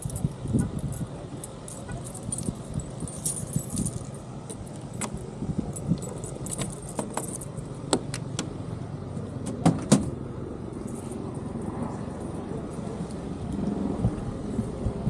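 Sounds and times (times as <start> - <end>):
keys jangling: 0.0 - 8.2.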